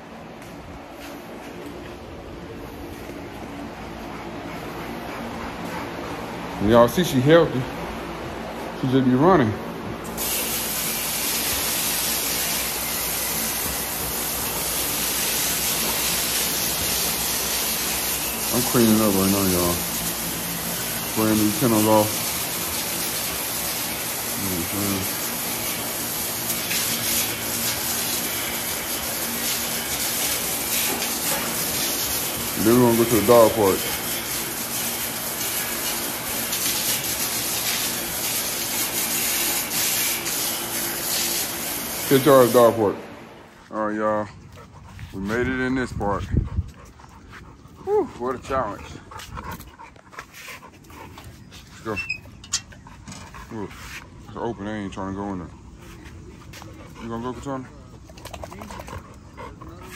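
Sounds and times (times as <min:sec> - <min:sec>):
water spraying from hose: 0:10.2 - 0:43.0.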